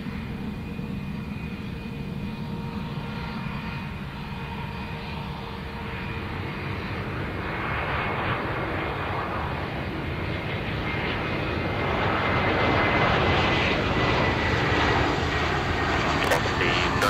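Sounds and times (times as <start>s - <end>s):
jet engines rushing: 15.2s - 17.0s
high engine whine: 15.6s - 17.0s.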